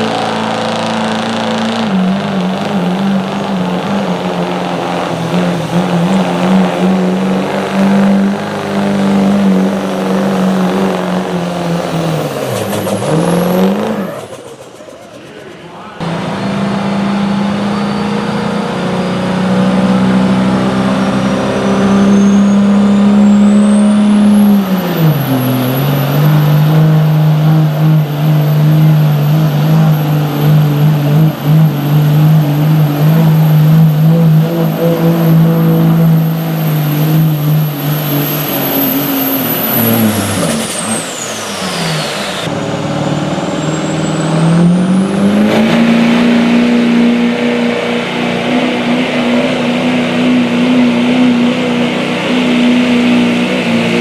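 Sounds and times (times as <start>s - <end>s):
diesel pickup engine at full throttle: 0.0s - 54.0s
second pickup engine revving: 0.0s - 54.0s
turbo whine: 21.9s - 54.0s.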